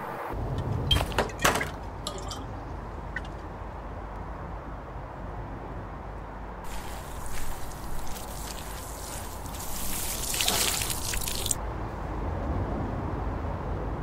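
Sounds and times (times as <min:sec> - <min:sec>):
water trickling onto plants: 0:06.7 - 0:11.6.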